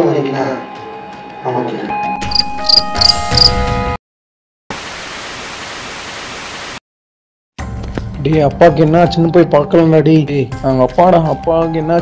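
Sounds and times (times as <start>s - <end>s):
hissing static: 4.7s - 6.8s.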